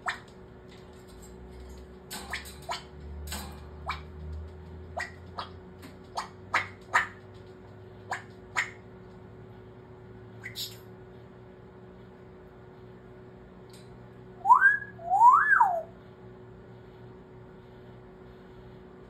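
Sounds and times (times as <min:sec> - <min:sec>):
parrot popping noises: 0:03.8 - 0:08.8.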